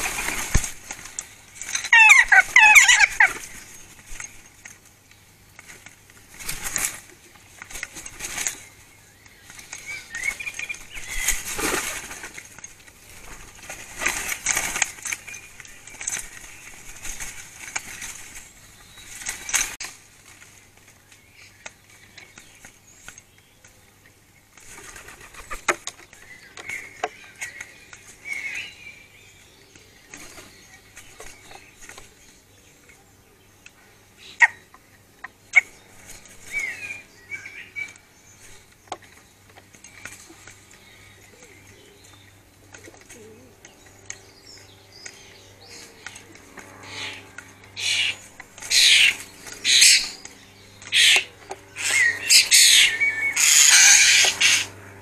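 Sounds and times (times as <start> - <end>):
birds flapping wings: 0.0 - 28.6, 29.7 - 32.4, 37.8 - 55.0
short bird calls: 45.6 - 54.8.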